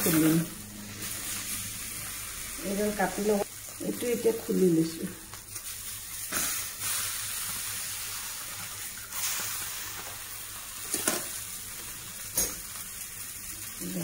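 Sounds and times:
fish sizzling in a pan: 0:00.0 - 0:14.0.

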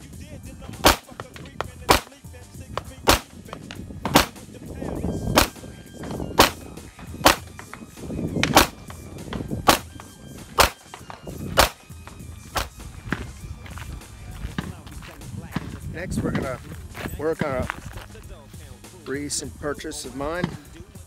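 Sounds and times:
pistol shots: 0:00.7 - 0:02.2, 0:02.8 - 0:04.5, 0:05.3 - 0:05.6, 0:06.4 - 0:07.6, 0:08.4 - 0:08.9, 0:09.6 - 0:11.9, 0:12.6 - 0:12.8.

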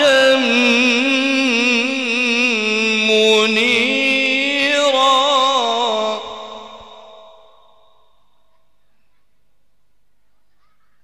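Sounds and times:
man reciting in ornamented chant: 0:00.0 - 0:08.0.

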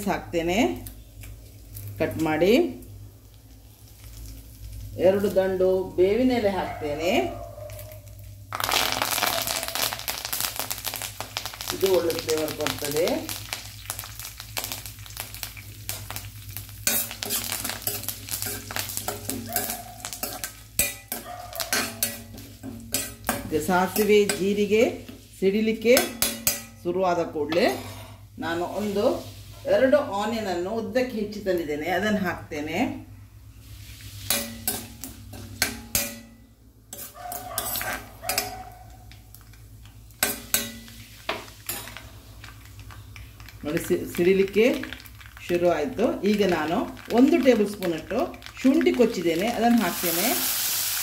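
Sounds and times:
spices sizzling in hot oil: 0:00.8 - 0:06.5, 0:07.8 - 0:26.8, 0:28.4 - 0:30.5, 0:33.4 - 0:51.0
spoon scraping and tapping pan: 0:16.9 - 0:24.6.

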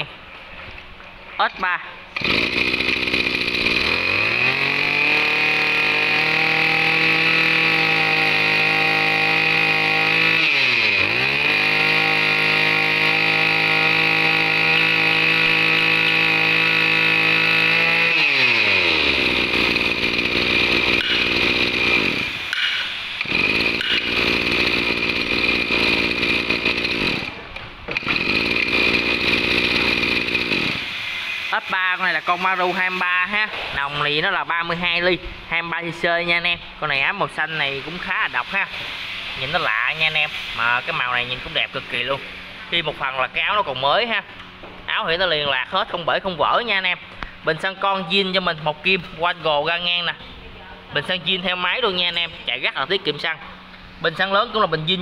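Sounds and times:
brush cutter engine revving: 0:02.2 - 0:34.5, 0:37.4 - 0:43.6.

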